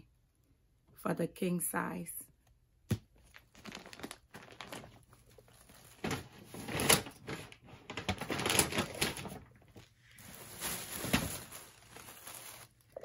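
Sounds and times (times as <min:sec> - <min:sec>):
packaging crinkling and rustling: 0:03.0 - 0:13.0.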